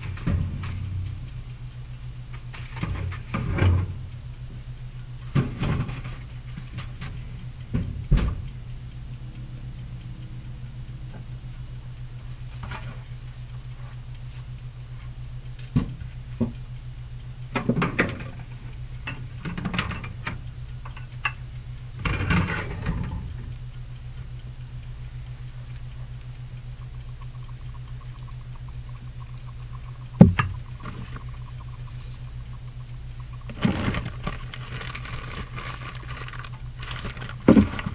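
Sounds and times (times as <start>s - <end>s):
low hum: 0.0s - 37.9s
oven door knocking: 0.2s - 1.1s, 7.7s - 8.5s
metal baking sheet clattering: 22.0s - 23.2s.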